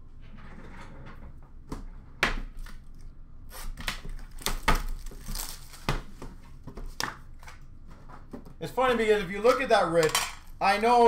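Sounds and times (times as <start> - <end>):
plastic wrap and cardboard rustling: 3.5 - 8.3.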